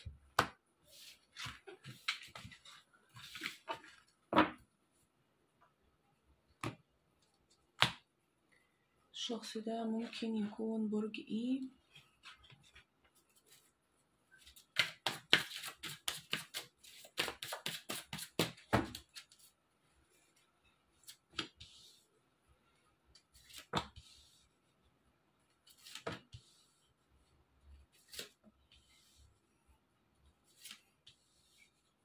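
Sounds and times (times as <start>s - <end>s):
cards shuffled by hand: 14.5s - 19.4s.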